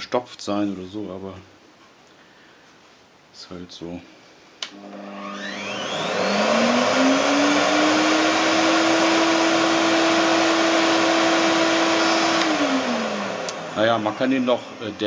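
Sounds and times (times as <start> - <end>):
vacuum motor whining: 4.7 - 15.0
vacuum switch click: 12.3 - 12.6, 13.4 - 13.6.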